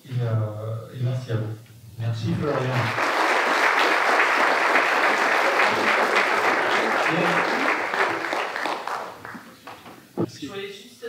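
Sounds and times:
voices in room: 0.0 - 11.0
audience applauding: 2.4 - 10.2.

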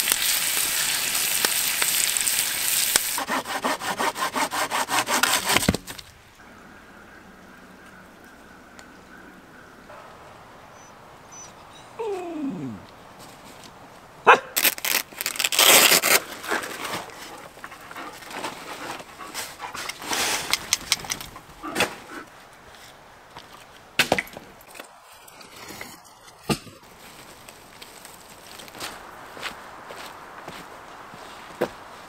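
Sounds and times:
rustling: 12.2 - 23.0.

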